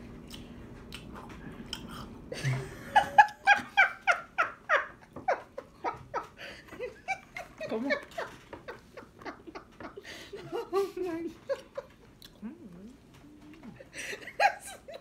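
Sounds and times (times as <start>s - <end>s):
woman laughing hard: 2.3s - 11.9s, 13.8s - 15.0s.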